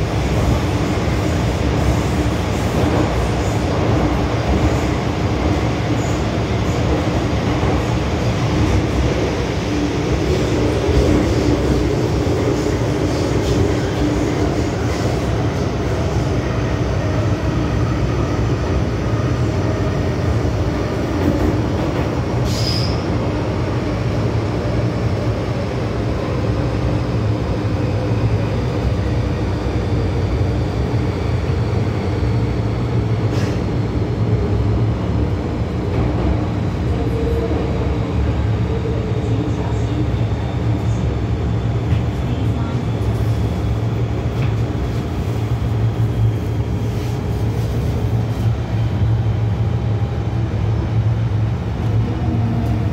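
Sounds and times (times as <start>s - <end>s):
train wheels rumbling on rail: 0.0s - 52.9s.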